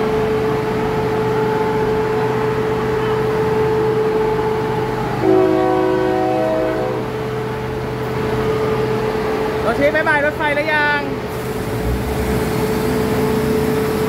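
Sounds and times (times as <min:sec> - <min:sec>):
diesel railcar engine hum: 0:00.0 - 0:14.0
train horn chord: 0:05.1 - 0:07.2.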